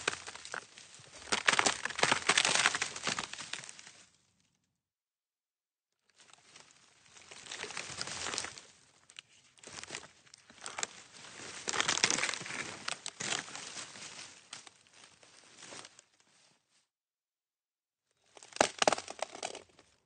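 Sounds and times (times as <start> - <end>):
twigs snapping and crackling: 0.0 - 4.0, 6.2 - 13.9, 18.3 - 19.8.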